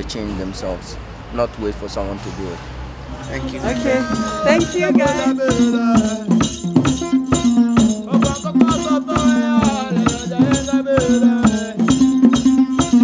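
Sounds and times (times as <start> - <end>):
person singing: 3.2 - 13.0
shaken rattle: 3.2 - 13.0.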